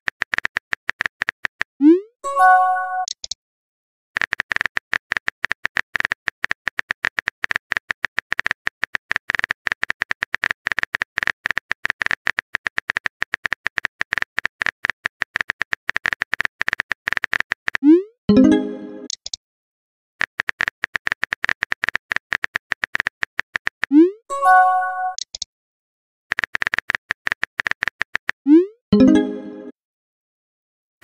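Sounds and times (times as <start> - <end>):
message chime: 2.2 - 3.1, 18.3 - 19.1, 24.3 - 25.2, 29.0 - 29.7
keyboard typing clicks: 2.9 - 3.4, 4.2 - 19.4, 20.2 - 25.5, 26.3 - 28.4.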